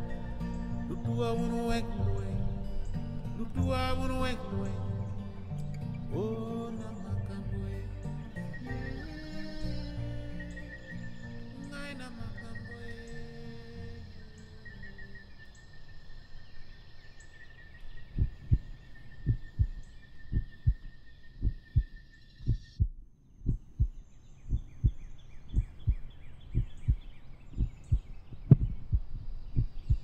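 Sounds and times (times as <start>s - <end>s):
night insects chirring: 0.0s - 22.8s
slow heartbeat thumps: 18.1s - 30.0s.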